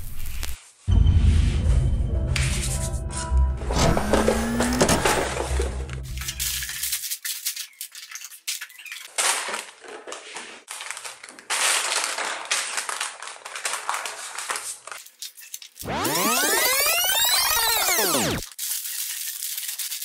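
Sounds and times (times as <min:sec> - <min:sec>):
plastic bags crinkling: 0:06.1 - 0:15.8, 0:18.4 - 0:20.0.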